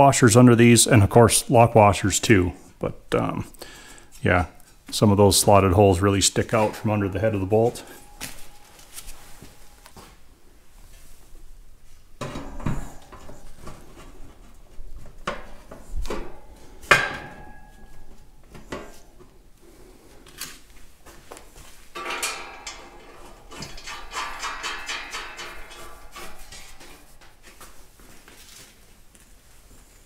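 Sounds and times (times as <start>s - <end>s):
metal parts clanking: 21.9s - 27.6s.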